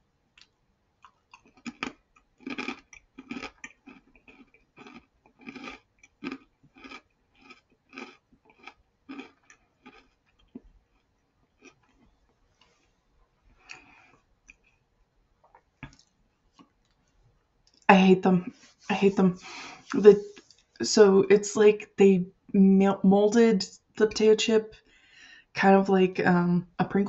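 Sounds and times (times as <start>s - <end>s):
mouth crunching potato chip: 1.1s - 12.0s.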